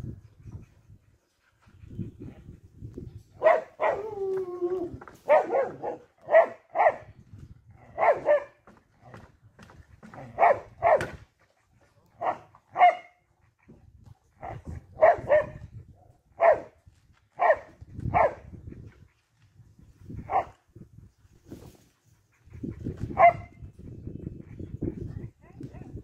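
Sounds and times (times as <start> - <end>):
dog barking: 3.4 - 4.1, 5.2 - 7.1, 8.0 - 8.6, 10.4 - 11.1, 12.2 - 13.2, 15.0 - 15.6, 16.4 - 16.7, 17.4 - 18.4, 23.2 - 23.6.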